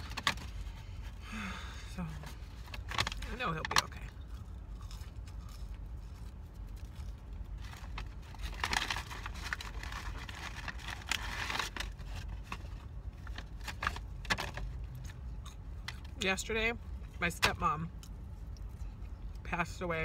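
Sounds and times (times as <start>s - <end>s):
low steady car hum: 0.0s - 20.0s
person chewing fries: 4.1s - 16.2s.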